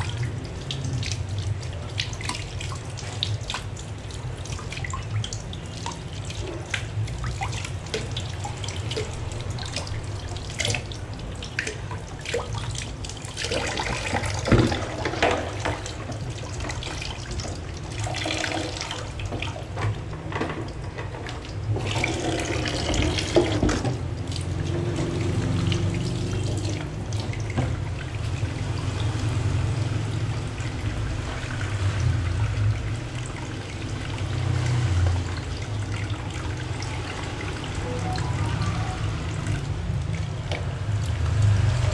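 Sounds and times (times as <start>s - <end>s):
water splashing: 0.0s - 20.1s, 21.1s - 41.9s
tap water running: 0.0s - 41.9s.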